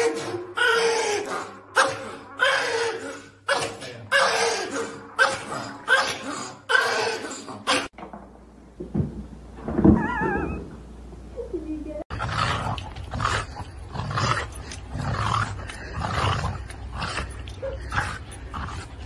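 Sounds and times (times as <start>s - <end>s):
dog yelping: 0.0s - 7.9s, 10.0s - 10.8s
low thump: 8.0s - 10.7s.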